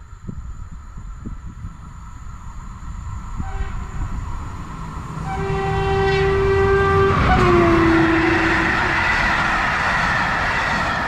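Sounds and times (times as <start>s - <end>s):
train rumbling past: 0.0s - 11.0s
train horn blasts: 3.4s - 4.2s, 5.2s - 11.0s.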